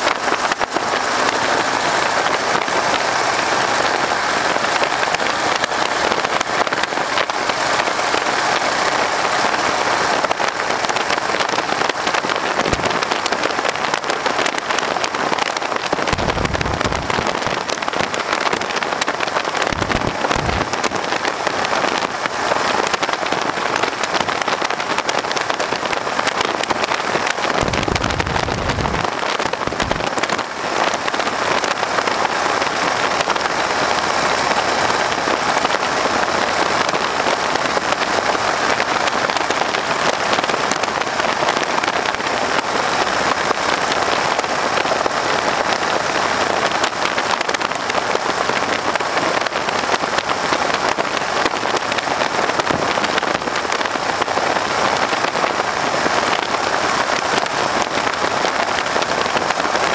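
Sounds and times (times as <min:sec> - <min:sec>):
radial aircraft engine running: 0:00.0 - 0:59.9
wind buffeting microphone: 0:10.6 - 0:24.5, 0:25.2 - 0:32.1
wind rushing: 0:16.0 - 0:17.8, 0:19.7 - 0:20.9, 0:27.6 - 0:30.2.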